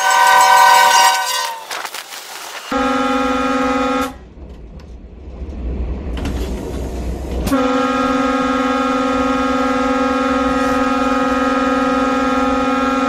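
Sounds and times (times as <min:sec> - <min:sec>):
train horn blast: 0:00.0 - 0:01.9, 0:02.7 - 0:04.3, 0:07.5 - 0:13.0
train rumbling along track: 0:00.0 - 0:13.0.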